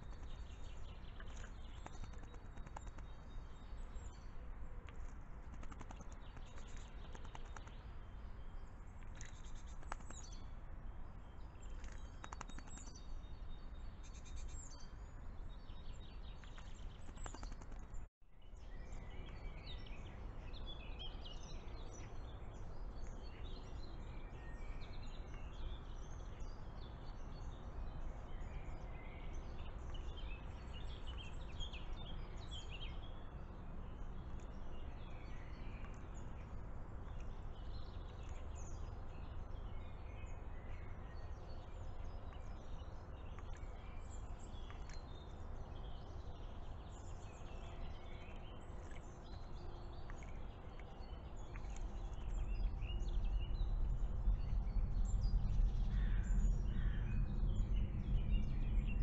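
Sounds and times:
low background rumble: 0:34.0 - 0:59.0.

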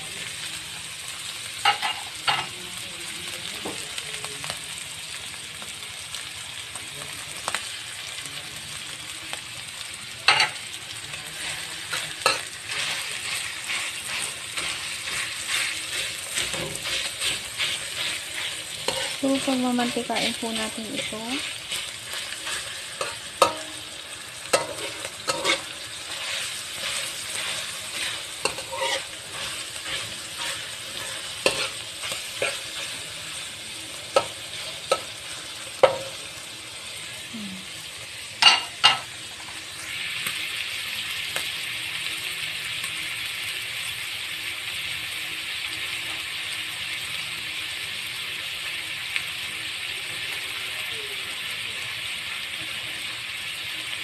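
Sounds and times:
sausage sizzling in a wok: 0:00.0 - 0:54.0
metal spatula scraping a wok: 0:11.2 - 0:36.2.

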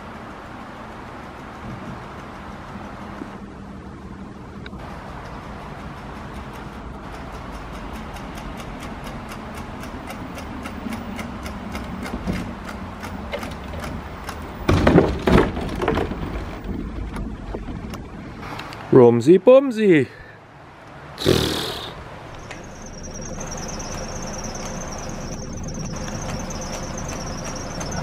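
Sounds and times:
electric scooter rumble: 0:00.0 - 0:14.7, 0:15.7 - 0:18.7, 0:22.2 - 0:28.0
fast even ticking: 0:04.8 - 0:13.3, 0:22.4 - 0:28.0
cart clattering: 0:22.5 - 0:28.0.

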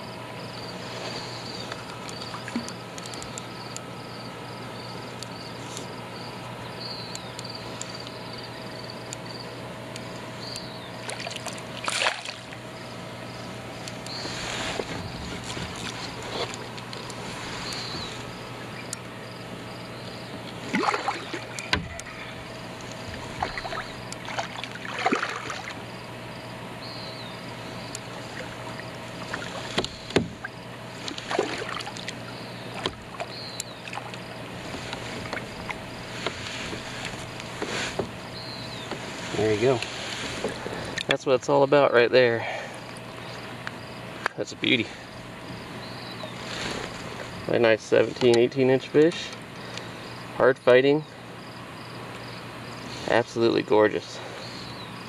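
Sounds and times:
faint steady hum: 0:00.0 - 0:55.0
fish splashing: 0:11.0 - 0:12.6, 0:20.6 - 0:25.8, 0:28.2 - 0:37.9
rod and reel knocking on hull: 0:29.2 - 0:30.5.

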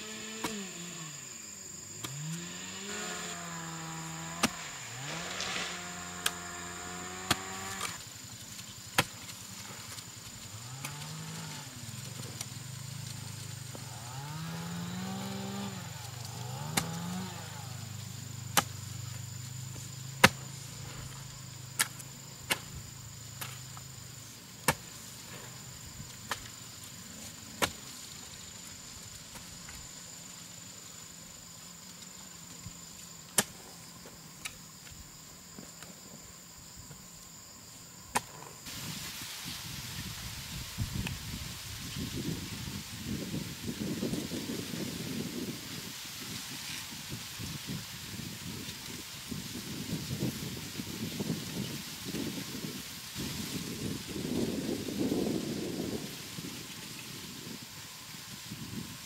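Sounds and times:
insect drone: 0:00.0 - 0:59.0
hoe chopping into soil: 0:00.2 - 0:00.8, 0:02.0 - 0:03.3, 0:04.0 - 0:08.0, 0:08.9 - 0:10.1, 0:16.4 - 0:17.4, 0:18.5 - 0:18.8, 0:20.1 - 0:22.8, 0:23.4 - 0:23.8, 0:24.6 - 0:25.5, 0:26.1 - 0:26.6, 0:27.5 - 0:27.9, 0:33.3 - 0:33.7, 0:38.1 - 0:38.5.

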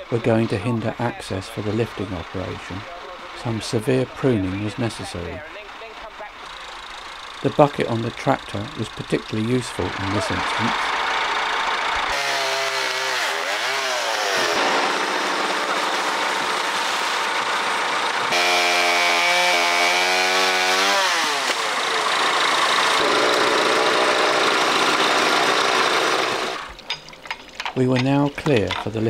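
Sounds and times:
tractor engine running: 0:00.0 - 0:29.0
chainsaw cutting branches: 0:06.3 - 0:26.9.

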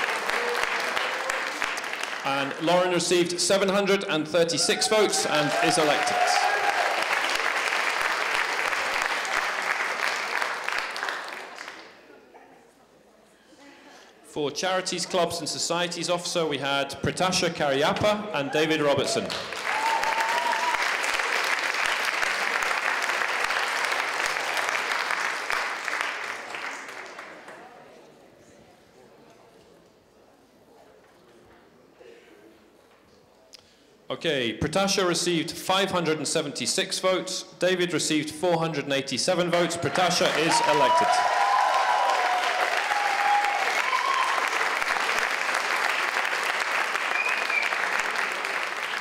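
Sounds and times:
audience applauding: 0:00.0 - 0:03.2, 0:04.6 - 0:12.0, 0:18.4 - 0:27.8, 0:39.5 - 0:49.0.

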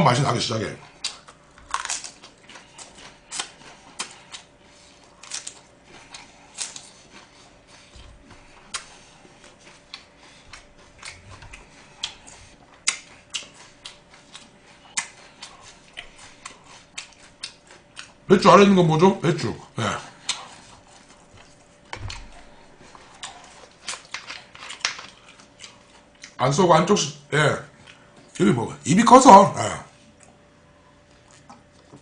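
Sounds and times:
crisp chewing crunches: 0:00.8 - 0:18.3, 0:19.8 - 0:26.4.

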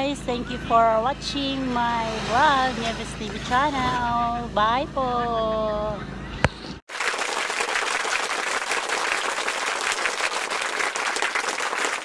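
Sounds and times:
crowd applause: 0:06.9 - 0:12.0.

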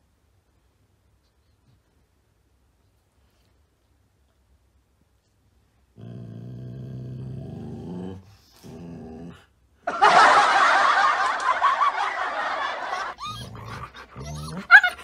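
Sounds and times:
low husky growls: 0:05.9 - 0:09.6, 0:13.2 - 0:15.0
loud burst of laughter: 0:09.9 - 0:15.0.

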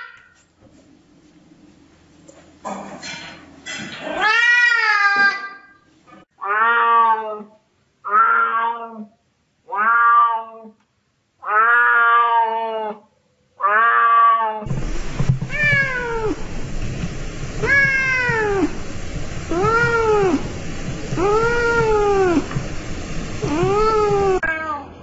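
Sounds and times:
cat meowing: 0:04.2 - 0:05.7, 0:06.4 - 0:09.1, 0:09.7 - 0:10.8, 0:11.4 - 0:13.0, 0:13.6 - 0:14.7, 0:15.4 - 0:16.4, 0:17.6 - 0:18.7, 0:19.5 - 0:20.4, 0:21.2 - 0:22.5, 0:23.4 - 0:24.9
kitten meowing: 0:08.1 - 0:09.0, 0:09.7 - 0:10.7, 0:11.4 - 0:12.8, 0:13.6 - 0:14.6, 0:15.5 - 0:16.4, 0:17.6 - 0:18.7, 0:21.2 - 0:22.5, 0:23.4 - 0:24.9
steady background noise: 0:14.7 - 0:25.0.

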